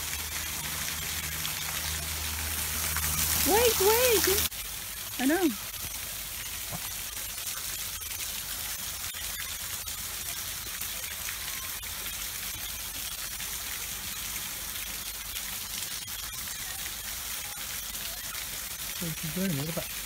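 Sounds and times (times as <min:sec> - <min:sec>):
water rushing: 0:00.0 - 0:09.9, 0:16.6 - 0:20.0.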